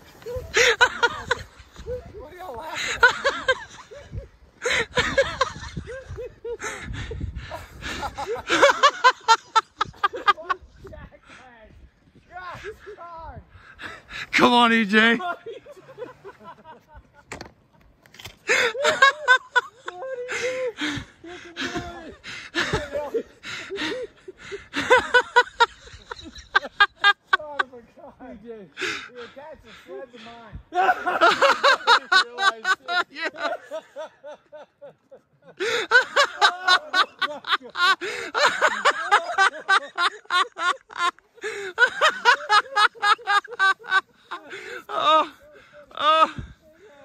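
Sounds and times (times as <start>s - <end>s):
people laughing: 0.0s - 11.4s, 12.4s - 47.0s
breath noise: 6.6s - 8.3s, 11.2s - 14.4s, 20.3s - 24.9s, 28.8s - 30.7s, 38.0s - 38.4s, 41.4s - 41.8s, 44.1s - 47.0s.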